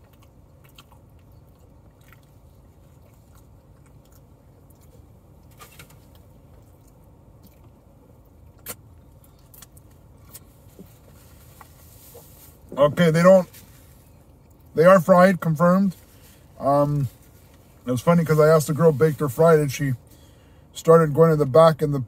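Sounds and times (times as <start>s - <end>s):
person chewing: 0.0s - 12.4s
car cabin rumble: 0.0s - 19.9s.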